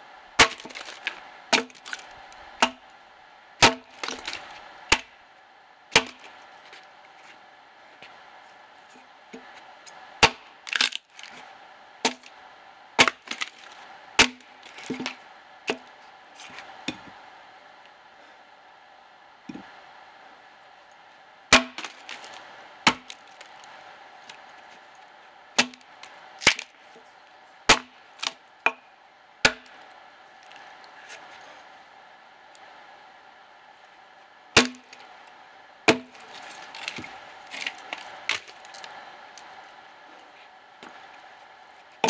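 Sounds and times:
axe chopping log: 0.4 - 2.8, 3.6 - 5.1, 5.9 - 6.4, 10.2 - 11.1, 12.0 - 12.3, 13.0 - 15.9, 21.5 - 23.5, 25.6 - 26.7, 27.7 - 28.8, 29.4 - 29.7, 34.6 - 35.0, 35.9 - 38.8.

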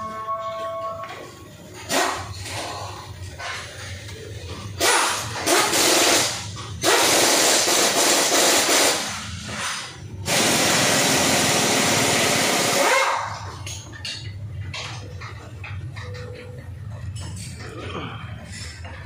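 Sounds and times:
pneumatic air tool hissing and rattling: 4.8 - 12.9.

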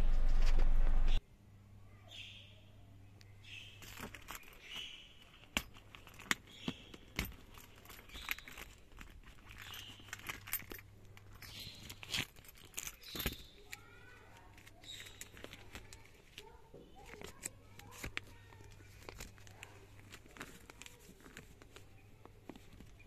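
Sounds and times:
leather rustling: 3.8 - 23.0
car key jangling: 5.6 - 13.5.

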